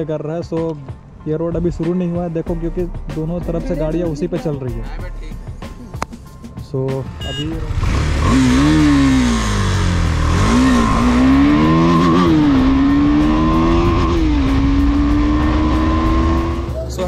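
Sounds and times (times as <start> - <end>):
motorcycle engine accelerating: 7.5 - 16.8.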